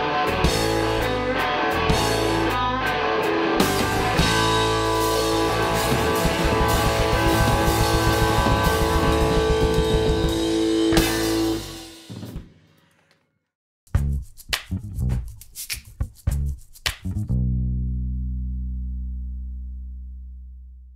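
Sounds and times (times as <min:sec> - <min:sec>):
live rock band playing: 0:00.0 - 0:11.8
fast drumming: 0:05.2 - 0:12.5.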